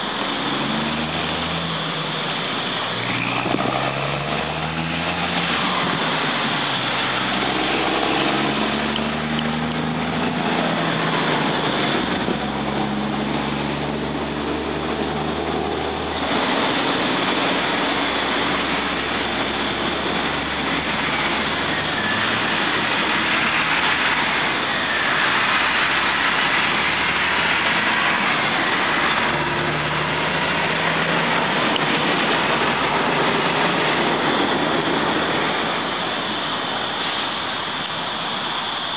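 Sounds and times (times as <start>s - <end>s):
cars and trucks passing: 0.0s - 38.9s
constant traffic rushing noise: 0.0s - 38.9s.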